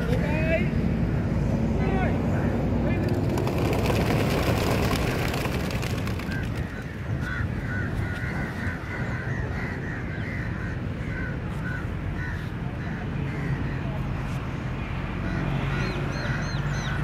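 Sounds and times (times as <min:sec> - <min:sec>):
pigeon wings flapping: 0:02.9 - 0:07.0.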